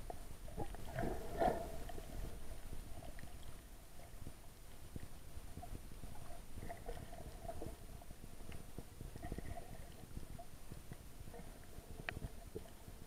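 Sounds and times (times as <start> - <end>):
low underwater rumble: 0.0 - 13.0.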